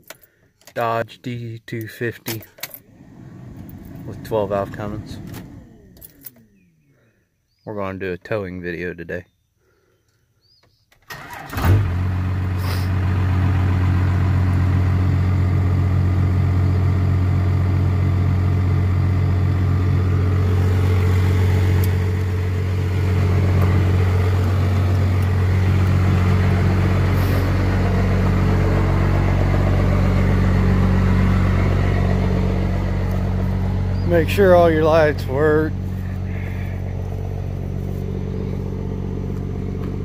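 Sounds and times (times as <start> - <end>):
diesel engine idling: 2.9 - 6.7, 11.2 - 40.0.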